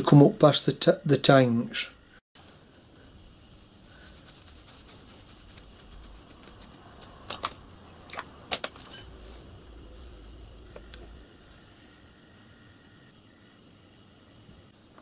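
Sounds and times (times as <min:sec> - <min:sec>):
brass fittings clinking: 0:07.0 - 0:09.2.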